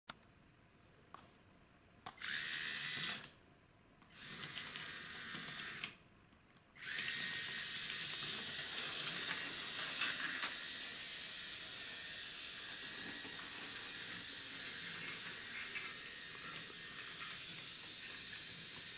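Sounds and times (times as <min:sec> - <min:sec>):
toy train motor whining: 0:02.2 - 0:03.3, 0:04.1 - 0:06.0, 0:06.8 - 0:18.9
click: 0:05.8 - 0:06.7.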